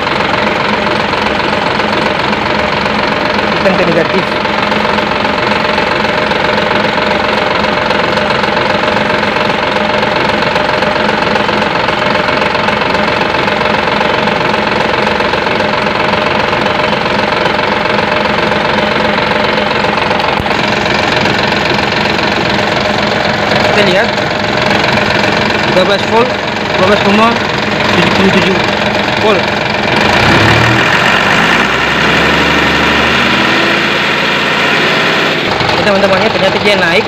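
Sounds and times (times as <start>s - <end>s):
forklift engine idling: 0.0s - 37.0s.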